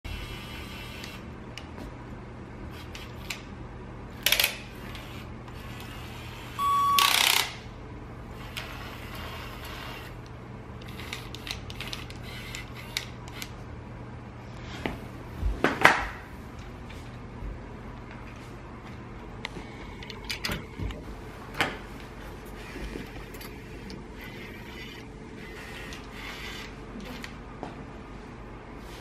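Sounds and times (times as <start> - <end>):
steady low hum: 0.1 - 29.0
short beep: 6.6 - 7.4.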